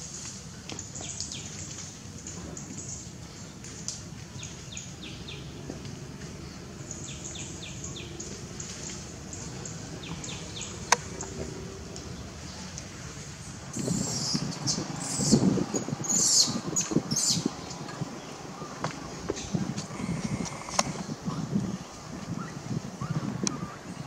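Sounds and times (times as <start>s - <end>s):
low background noise: 0.0s - 24.0s
bird chirping: 6.8s - 12.7s.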